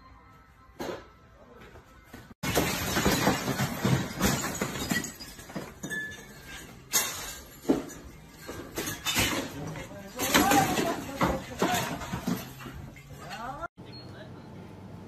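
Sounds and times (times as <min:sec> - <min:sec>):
glass bottles rattling and clinking: 0:02.4 - 0:13.7.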